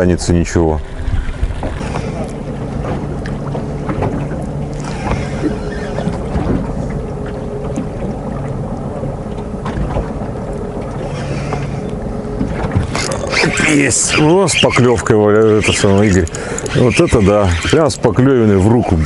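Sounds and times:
low steady hum: 0:00.0 - 0:19.0
water around a boat: 0:00.0 - 0:19.0
wind: 0:00.0 - 0:19.0
faint clicks: 0:15.4 - 0:16.8.

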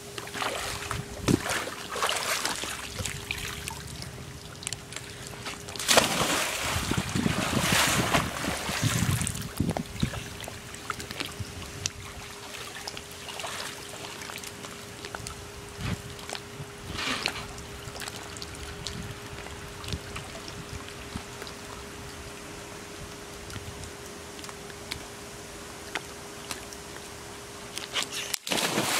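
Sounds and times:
faint steady hum: 0:00.0 - 0:28.9
water sloshing and dripping: 0:00.2 - 0:22.4
water splashing in a pool: 0:00.2 - 0:25.2, 0:25.8 - 0:28.9
water rushing: 0:00.3 - 0:11.4.

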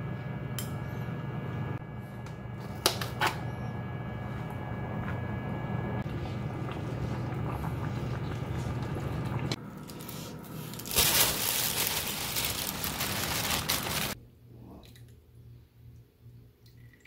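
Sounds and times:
steady low hum: 0:00.0 - 0:16.8
rustling hiss in pot: 0:09.9 - 0:14.2.

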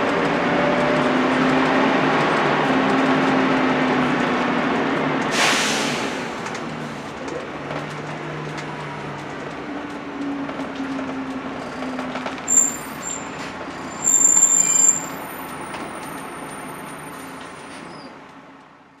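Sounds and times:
bus diesel engine running: 0:00.0 - 0:19.0
air hiss: 0:05.3 - 0:06.4
brake squeals: 0:10.2 - 0:18.2.

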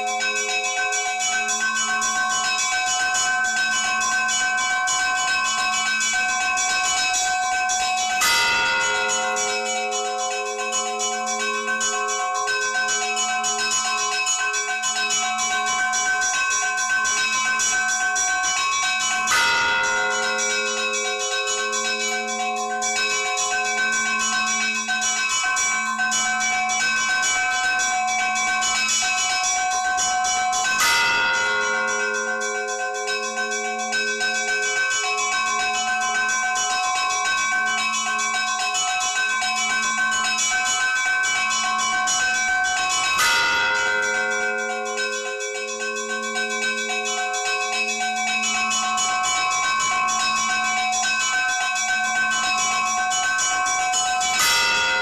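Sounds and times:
pulsing lower bell: 0:00.0 - 0:55.0
small church bells chiming quickly: 0:00.0 - 0:55.0
heavy bell stroke with long ring: 0:19.1 - 0:25.5.

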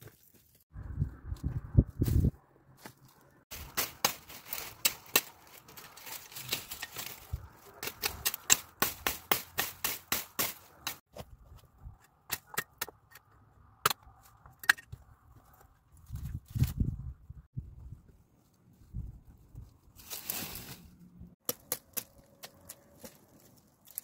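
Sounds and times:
dry twigs crackling and snapping: 0:02.8 - 0:11.0, 0:21.4 - 0:24.0.

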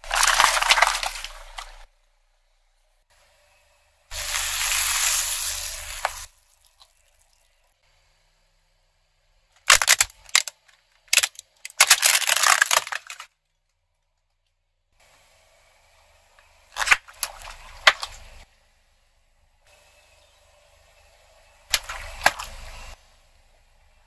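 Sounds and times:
plastic toy cracking under tyre: 0:00.0 - 0:01.7, 0:09.6 - 0:13.6
water balloons bursting: 0:21.7 - 0:23.0.

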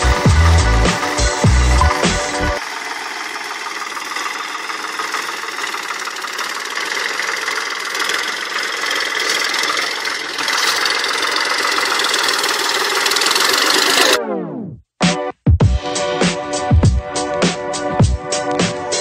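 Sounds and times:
tractor diesel engine running: 0:00.0 - 0:14.2.

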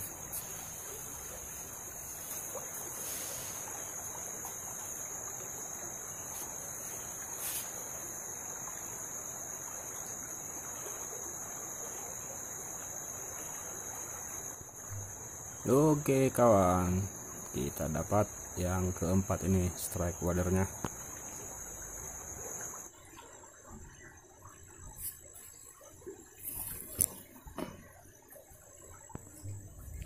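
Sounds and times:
shallow stream rushing: 0:00.0 - 0:22.9
insects droning: 0:00.0 - 0:30.0.

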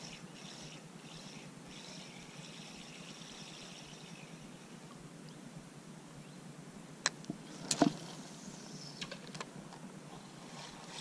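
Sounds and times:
fishing reel clicking: 0:00.0 - 0:04.4
fishing rod swish and rattle: 0:10.2 - 0:11.0.

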